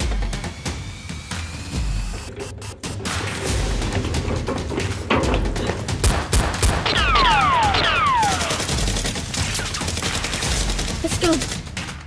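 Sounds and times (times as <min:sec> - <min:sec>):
gunfire sound effects: 0:06.0 - 0:11.6.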